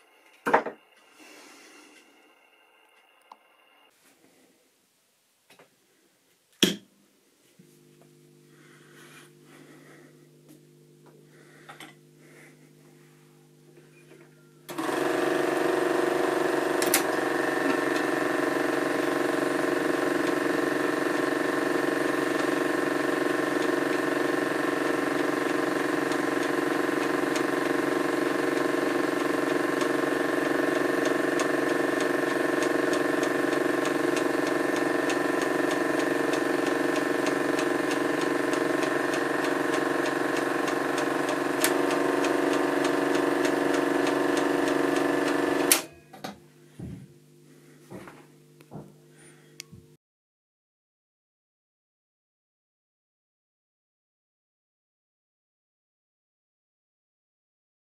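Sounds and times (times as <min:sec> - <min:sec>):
film projector motor hum: 0:13.8 - 0:45.9
film transport ticking: 0:14.7 - 0:45.9.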